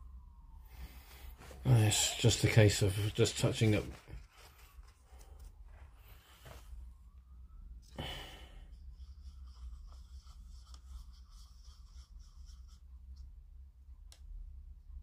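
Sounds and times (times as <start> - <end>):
low steady hum: 0.0 - 15.0
breath out close to microphone: 8.0 - 8.7.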